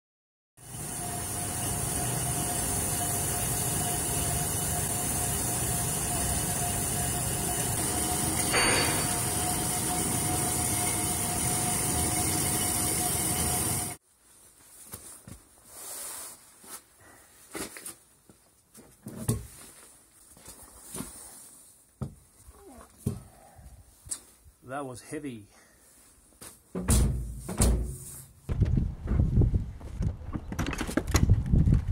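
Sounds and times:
band saw whining: 0.6s - 14.0s
knocks and thumps: 26.7s - 31.9s.

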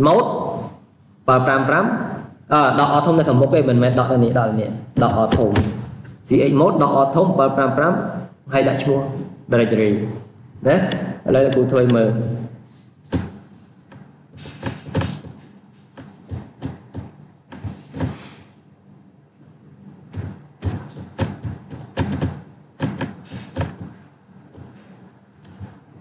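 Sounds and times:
knocks and clicks: 13.1s - 18.2s, 20.1s - 25.8s
short hiss: 17.8s - 18.6s.

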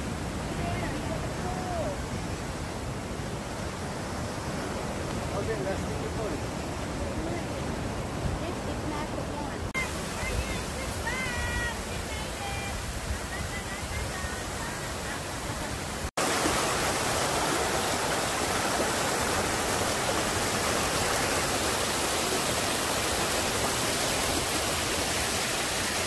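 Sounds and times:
water rushing over rocks: 0.0s - 26.0s.

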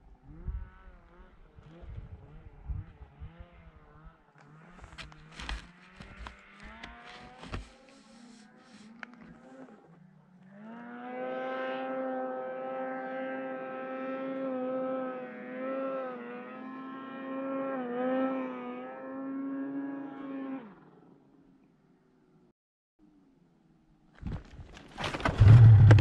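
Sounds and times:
snowmobile engine revving: 0.2s - 20.9s, 25.2s - 26.0s.

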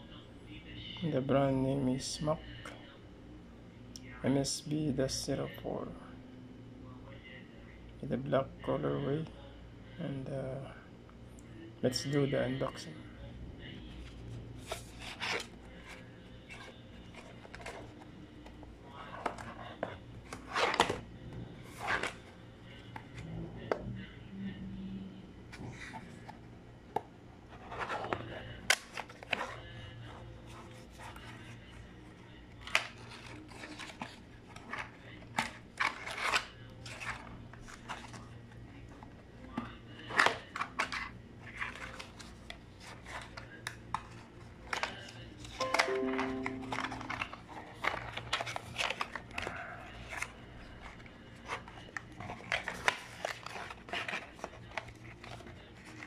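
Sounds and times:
paper rustling: 32.6s - 38.3s, 40.0s - 56.0s.

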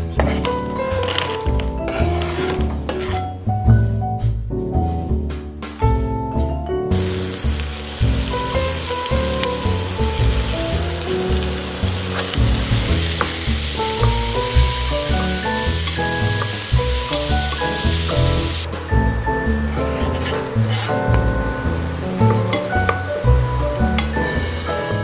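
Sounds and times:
wooden spoon stirring: 0.2s - 3.2s, 8.2s - 18.7s, 19.7s - 23.2s
background music with bass line: 0.9s - 25.0s
onions sizzling in oil: 6.9s - 18.7s, 19.9s - 25.0s.

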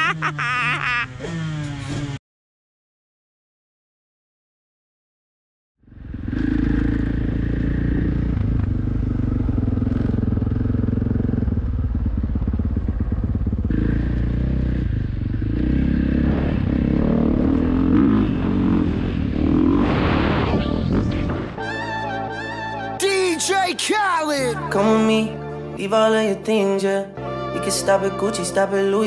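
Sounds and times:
motocross bike engine: 0.0s - 2.2s, 5.8s - 21.6s.

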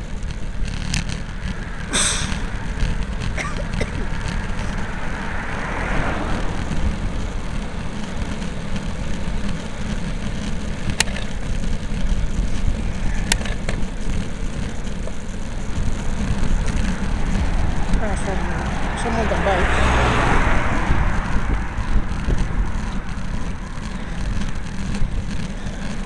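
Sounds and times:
wind buffeting microphone: 10.1s - 26.0s.

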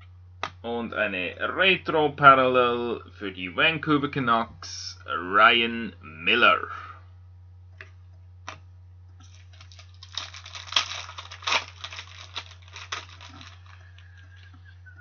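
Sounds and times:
low hum: 0.0s - 15.0s
cards rustling and clicking: 9.2s - 14.5s.

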